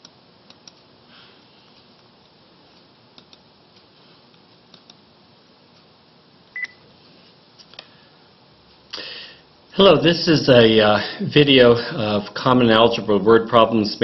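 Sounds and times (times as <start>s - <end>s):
room hiss: 0.0s - 14.0s
mouse clicks: 3.2s - 3.4s, 4.7s - 5.0s.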